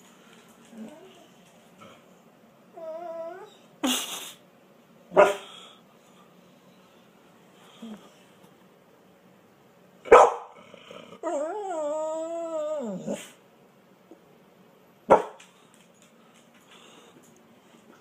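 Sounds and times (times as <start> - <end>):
dog whine-howling: 2.7 - 3.7, 11.2 - 13.3
dog barking: 5.1 - 5.5, 10.0 - 10.6, 15.1 - 15.4.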